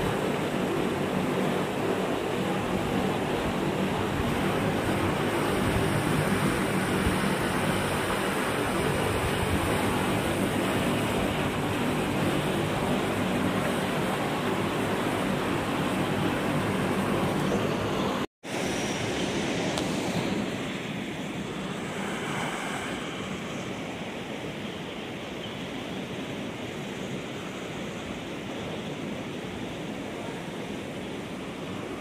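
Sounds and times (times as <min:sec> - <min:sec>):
outdoor rushing noise: 0:18.4 - 0:25.3.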